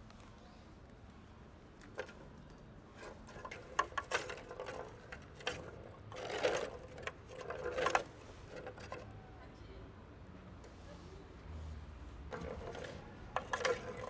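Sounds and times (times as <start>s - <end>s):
plastic ball rattling in track toy: 2.9s - 9.2s, 12.3s - 14.0s.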